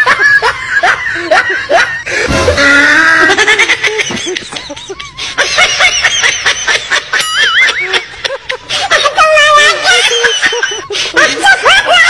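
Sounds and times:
warbling tone: 0:02.3 - 0:03.4.

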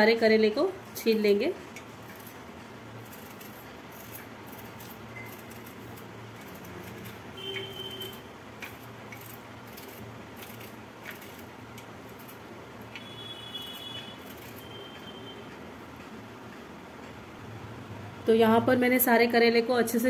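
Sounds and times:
knife clicks and scrapes: 0:03.0 - 0:13.1, 0:14.0 - 0:15.1.

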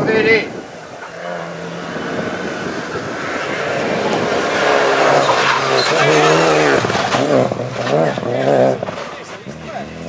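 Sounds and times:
rally car engine revving: 0:00.0 - 0:10.0.

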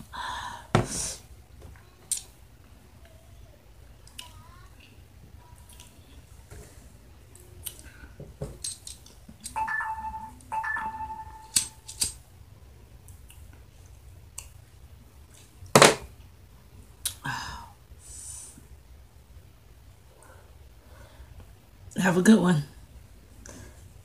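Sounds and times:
short high tones: 0:09.6 - 0:12.0.

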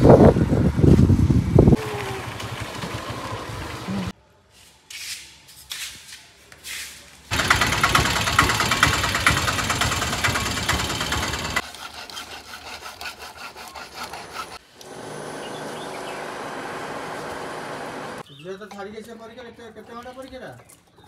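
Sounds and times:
engine idling: 0:01.8 - 0:04.1, 0:07.3 - 0:11.6.

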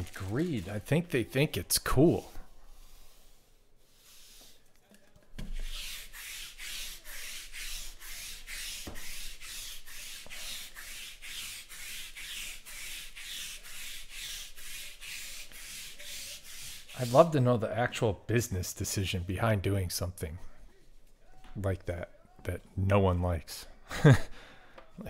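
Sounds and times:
trading cards swishing: 0:00.0 - 0:01.5.

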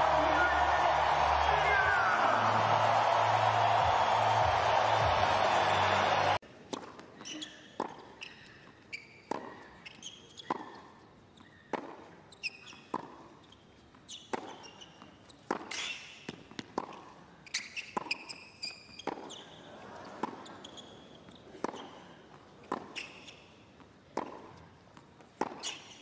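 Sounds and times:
shoes squeaking on court: 0:07.0 - 0:16.7, 0:17.4 - 0:23.9, 0:25.2 - 0:26.0
tennis ball bouncing: 0:11.7 - 0:12.1, 0:15.4 - 0:17.2, 0:23.8 - 0:25.9.

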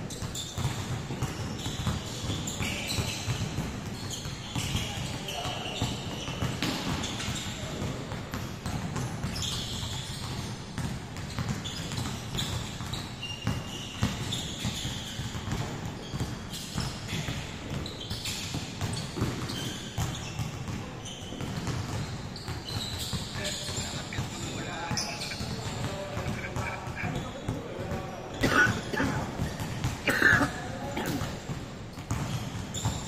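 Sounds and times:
basketballs bouncing on court floor: 0:00.0 - 0:33.0
sneaker squeaks: 0:00.0 - 0:33.0.

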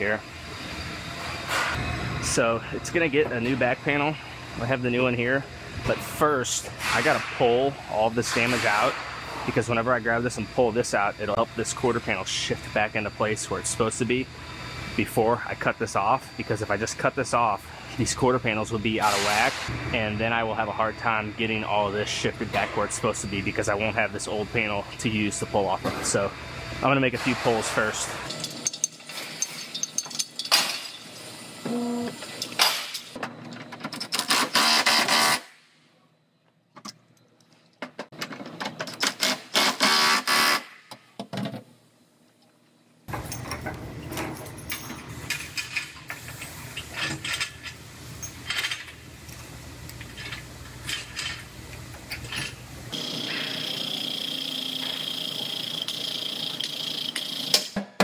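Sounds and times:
steady high whine: 0:00.0 - 0:33.1
steady hum: 0:00.0 - 0:33.2
metal chains and clamps clanking: 0:27.7 - 0:31.2, 0:43.1 - 0:46.0.

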